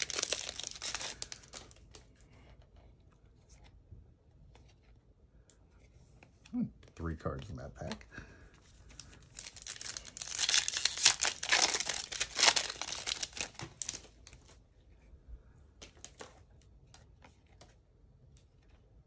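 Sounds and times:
foil wrapper tearing and crinkling: 0.0 - 1.8, 9.1 - 14.1.

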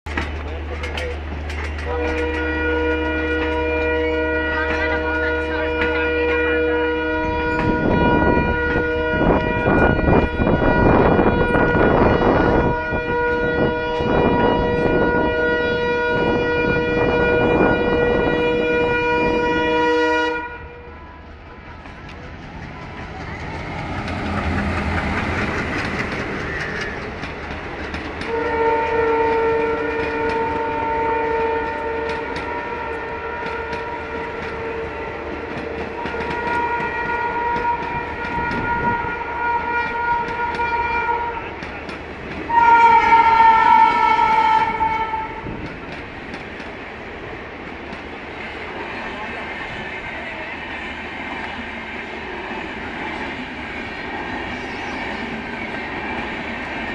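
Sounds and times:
train wheels clattering: 0.1 - 19.6, 21.3 - 56.9
train rushing past: 0.1 - 56.9
train horn: 0.9 - 46.0.

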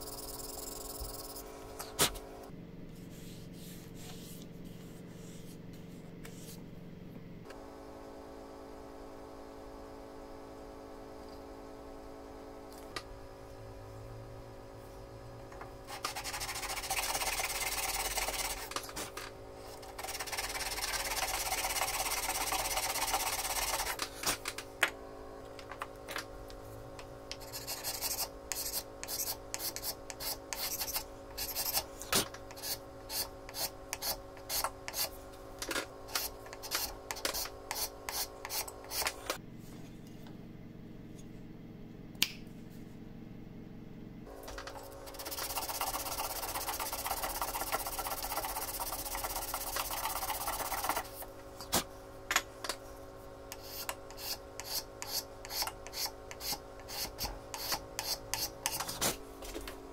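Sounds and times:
faint hum: 0.0 - 59.9
file rasping on wood: 15.9 - 18.7, 20.0 - 24.0, 53.6 - 59.0.

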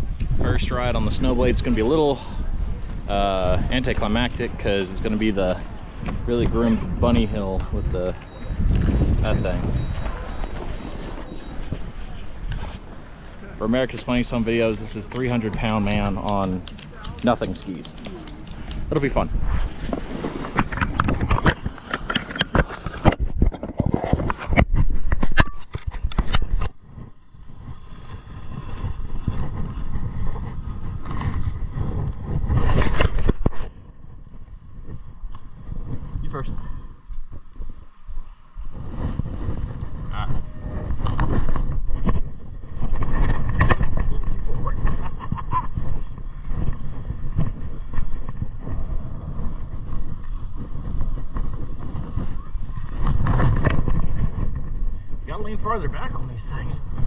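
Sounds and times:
wind rumble on camera: 0.0 - 57.0
skis scraping over snow: 17.2 - 23.0.

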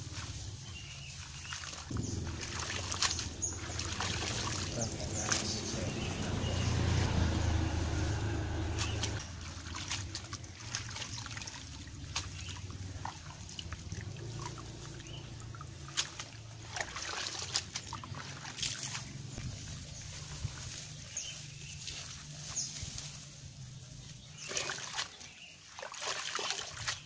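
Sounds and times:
water sloshing in a basin: 0.0 - 22.6, 24.2 - 27.0
knocks and splashes: 1.2 - 20.6, 24.4 - 27.0
low steady rumble: 1.9 - 16.8.

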